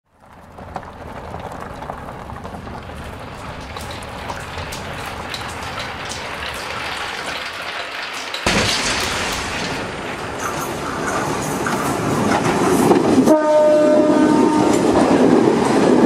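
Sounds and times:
glass marbles rolling and clicking: 3.5 - 10.0.

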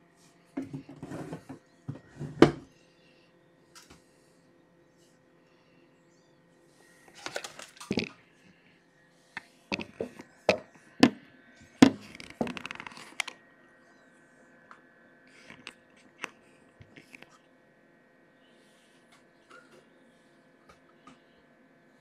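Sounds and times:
objects clicking and knocking: 7.2 - 8.2, 9.7 - 11.2, 11.8 - 13.4.

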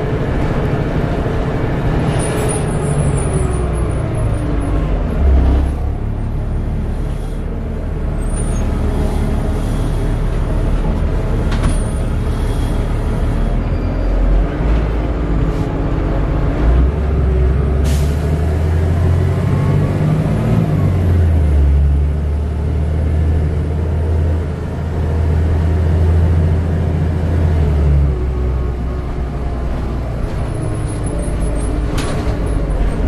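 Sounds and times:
bus engine drone: 0.0 - 33.0.

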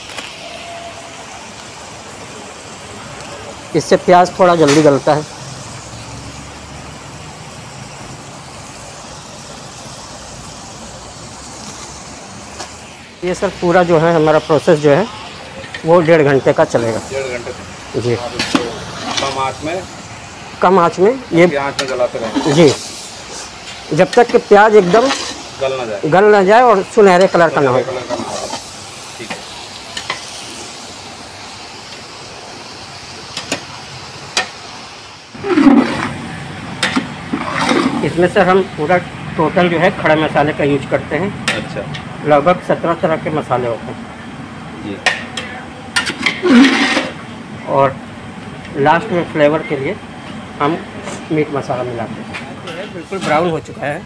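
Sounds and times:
onions sizzling in pot: 0.0 - 54.0
steady rushing noise: 10.5 - 29.3.

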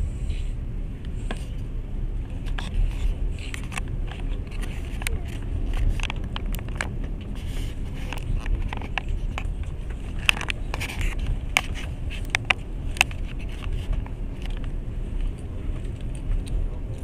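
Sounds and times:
train carriage rumbling on track: 0.0 - 17.0
clicks and rattles of train: 1.0 - 17.0.

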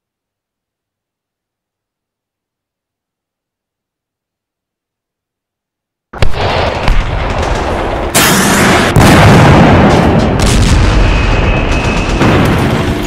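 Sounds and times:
gunfire: 6.2 - 13.0
heavy explosions: 6.2 - 13.0.

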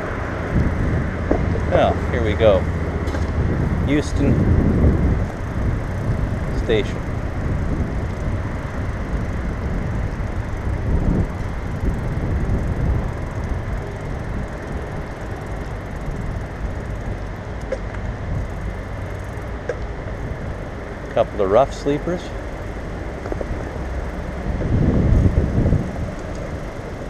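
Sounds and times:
air rushing past microphone: 0.0 - 14.5, 23.0 - 27.0
bicycle tyres on wet pavement: 0.0 - 27.0.

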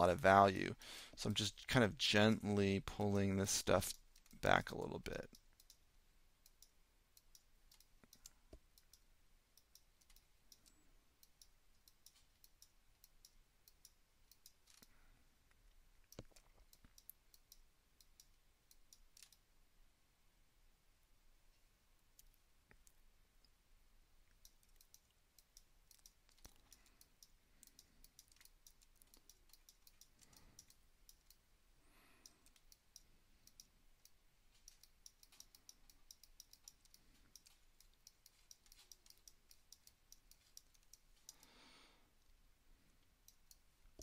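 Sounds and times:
mouse and keyboard clicks: 9.6 - 15.0, 16.1 - 19.4, 24.3 - 31.4, 32.2 - 41.4.

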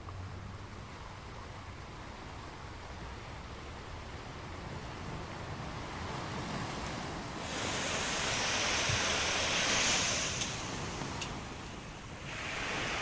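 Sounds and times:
sea waves washing on sand: 4.3 - 13.0.

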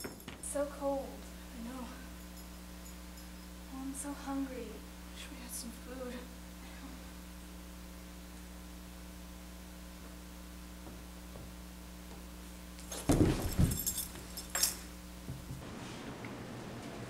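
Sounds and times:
electrical hum: 0.0 - 17.0
metallic jingling: 1.6 - 3.7, 12.8 - 15.0
thumps and rustling: 12.8 - 15.7.

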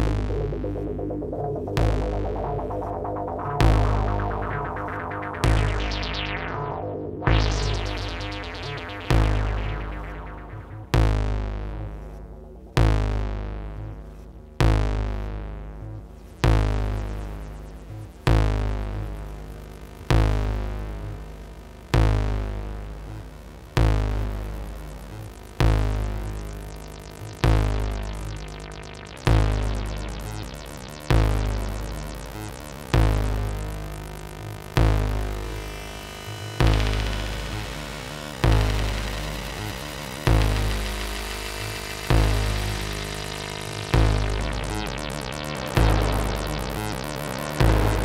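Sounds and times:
deep synth bass hits: 0.0 - 13.8, 25.6 - 48.0.

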